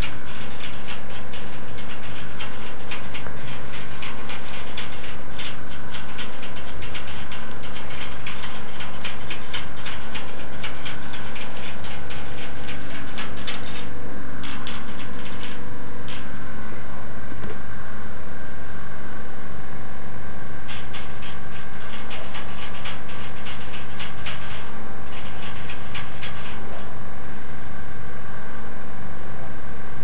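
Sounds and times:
rabbit licking water: 0.0 - 16.3, 20.7 - 26.8
steady low hum: 0.0 - 30.0.

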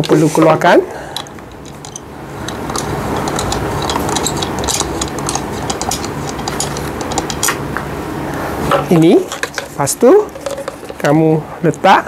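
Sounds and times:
steady background rush: 0.0 - 11.6.

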